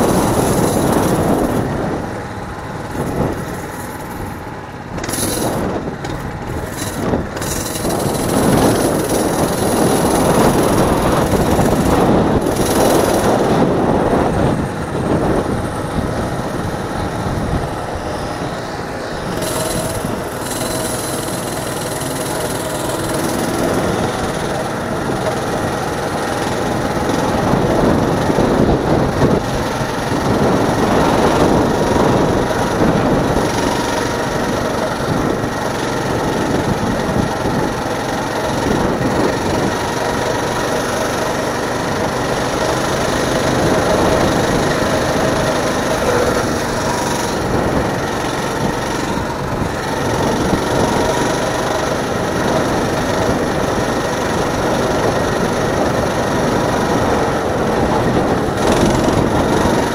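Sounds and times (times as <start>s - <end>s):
mini bike engine running: 0.0s - 59.9s
wind noise on microphone: 0.0s - 59.9s.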